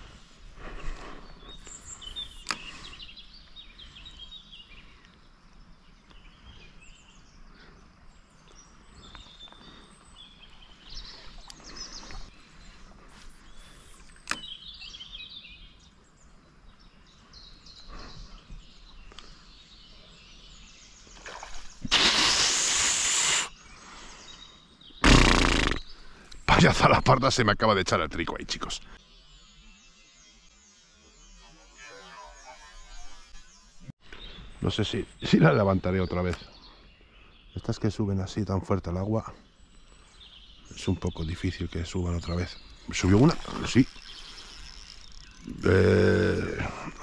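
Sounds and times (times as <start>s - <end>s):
small birds chirping: 0.0s - 47.0s
sharp clicks: 2.4s - 2.7s
loud rustling burst: 21.8s - 23.5s.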